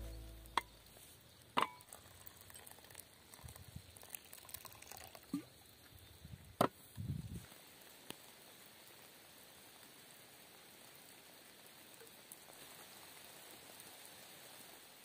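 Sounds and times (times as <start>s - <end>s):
liquid trickling into mug: 1.6s - 5.6s.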